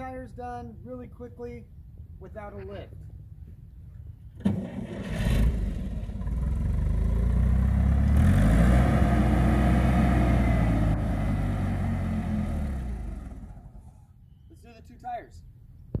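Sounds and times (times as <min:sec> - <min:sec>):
forklift engine revving: 0:04.4 - 0:13.9.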